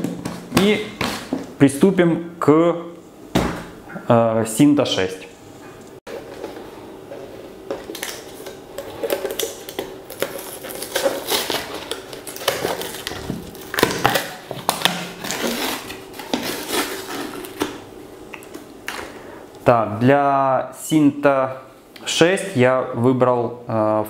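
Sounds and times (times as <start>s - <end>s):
plastic lid unscrewing and seal crinkling: 6.1s - 17.8s.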